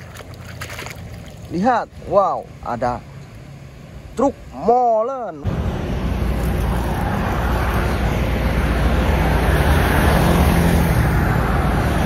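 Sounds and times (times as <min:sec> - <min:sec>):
road traffic passing: 0:00.0 - 0:12.0
heavy vehicle engine hum: 0:05.4 - 0:12.0.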